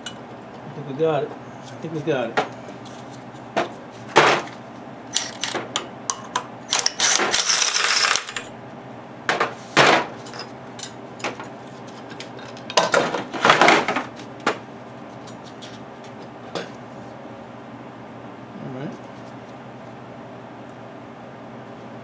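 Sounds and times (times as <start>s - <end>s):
metal parts clinking on tray: 6.8s - 8.5s.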